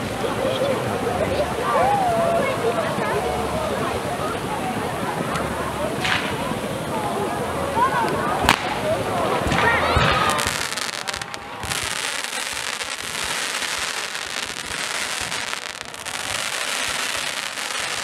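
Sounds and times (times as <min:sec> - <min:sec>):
fireworks sparks hissing and crackling: 0:04.7 - 0:06.8, 0:07.8 - 0:18.0
firework bang: 0:09.4 - 0:18.0.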